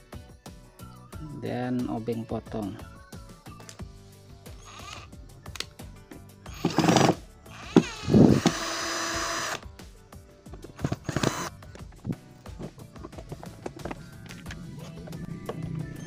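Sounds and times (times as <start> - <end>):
cordless drill whirring: 4.6 - 5.1, 6.5 - 9.6, 10.7 - 11.6.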